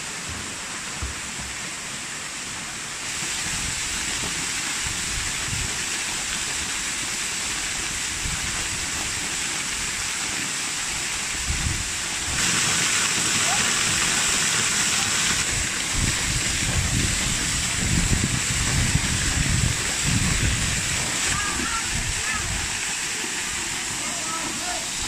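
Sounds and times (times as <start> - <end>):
waterfall pouring onto rocks: 0.0 - 25.0.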